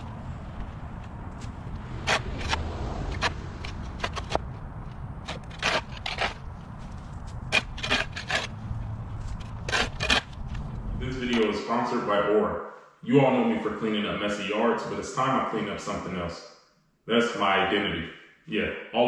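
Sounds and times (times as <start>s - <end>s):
low steady rumble: 0.0s - 11.6s
brush scraping and rubbing: 1.4s - 4.4s, 5.2s - 11.5s.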